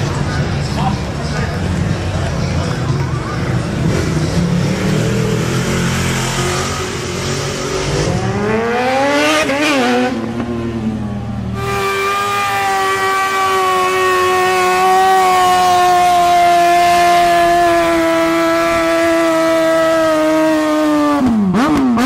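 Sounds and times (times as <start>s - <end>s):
sport bike engine revving: 3.4s - 22.0s
motorcycle burnout at high revs: 3.6s - 10.7s, 11.6s - 22.0s.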